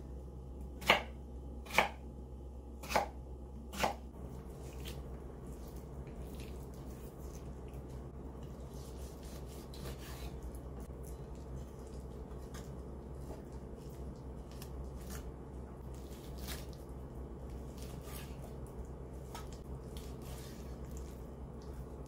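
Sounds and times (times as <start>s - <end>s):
knife chopping on cutting board: 0.8s - 2.0s, 2.8s - 4.1s, 8.7s - 10.4s.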